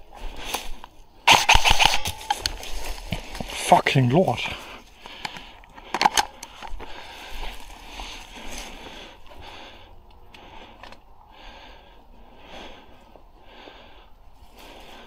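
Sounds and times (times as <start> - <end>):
rustling of grass and gear: 0.0 - 11.1, 14.2 - 15.0
sharp clicks: 1.3 - 2.6
person breathing heavily: 4.3 - 15.0.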